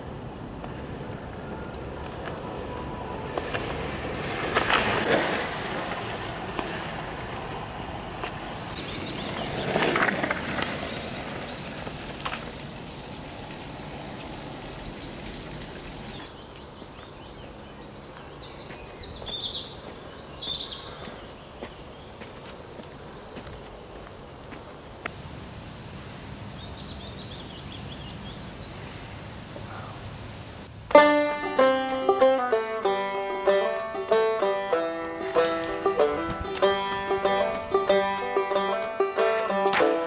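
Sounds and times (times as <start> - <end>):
longboard wheels rolling on asphalt: 0.0 - 29.2, 30.5 - 40.0
bird chirping: 8.7 - 10.1, 16.0 - 22.2, 26.3 - 30.0.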